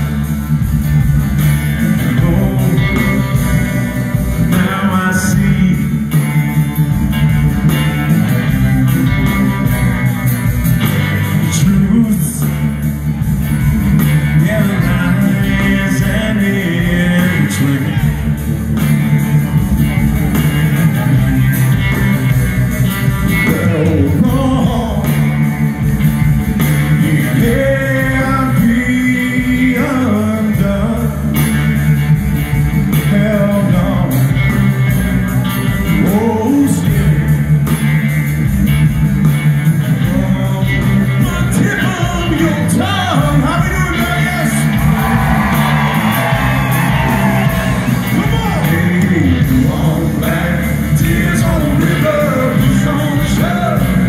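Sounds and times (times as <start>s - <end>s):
live rock band playing: 0.0s - 54.0s
person singing: 1.8s - 6.7s, 14.2s - 18.4s, 23.3s - 25.4s, 26.8s - 31.5s, 39.9s - 54.0s.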